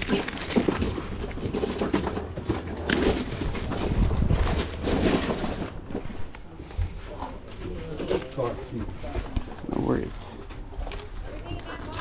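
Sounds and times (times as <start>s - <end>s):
wind buffeting microphone: 3.4s - 5.0s.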